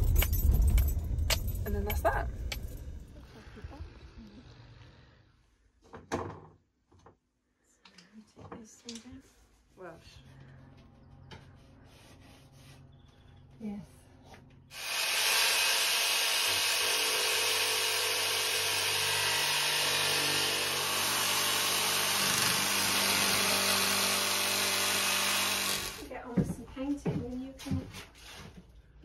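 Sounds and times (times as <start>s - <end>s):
jigsaw cutting wood: 14.7s - 26.1s.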